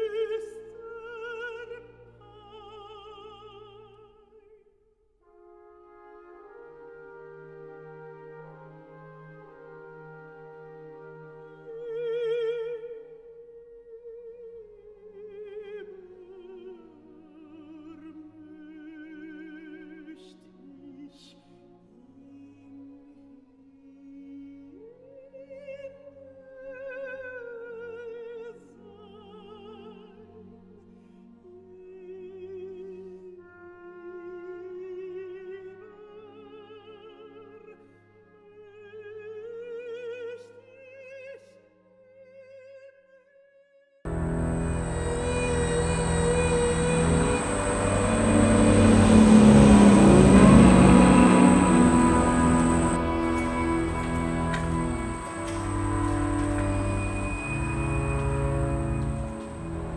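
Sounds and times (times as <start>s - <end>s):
operatic voice singing: 44.1s - 59.9s
quiet accompaniment: 44.1s - 59.9s.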